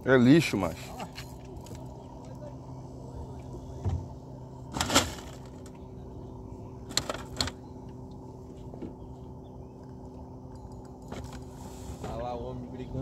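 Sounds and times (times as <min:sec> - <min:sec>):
boat motor hum: 0:00.0 - 0:13.0.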